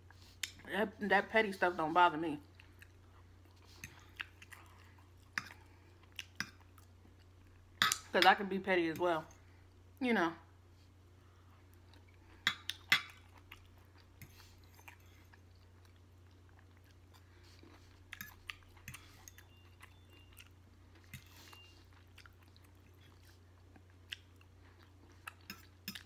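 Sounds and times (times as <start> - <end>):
chewing food: 2.4 - 7.8, 11.4 - 26.0.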